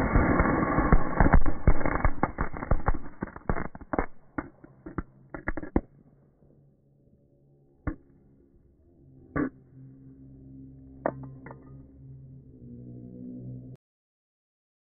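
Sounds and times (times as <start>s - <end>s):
firecrackers popping: 0.0s - 5.9s.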